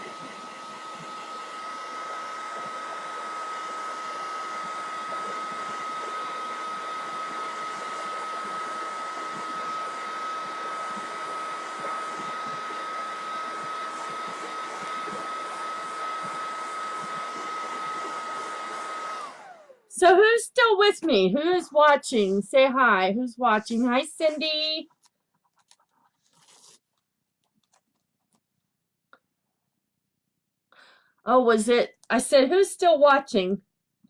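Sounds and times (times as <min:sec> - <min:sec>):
hair dryer running: 0:00.0 - 0:22.3, 0:23.5 - 0:24.8.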